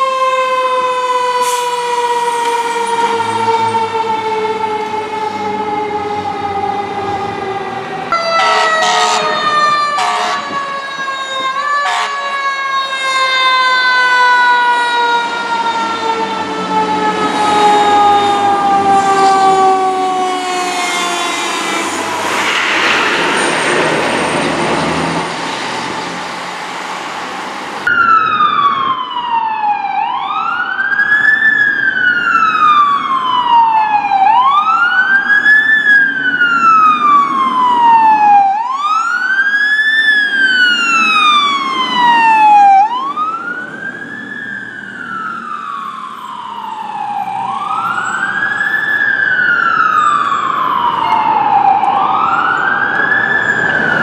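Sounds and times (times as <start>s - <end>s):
electronic siren wailing: 0.0s - 22.4s, 27.9s - 54.0s
siren sliding down in pitch: 0.0s - 26.4s, 27.8s - 54.0s
short horn blasts: 8.2s - 9.4s, 10.0s - 10.6s, 11.8s - 12.3s.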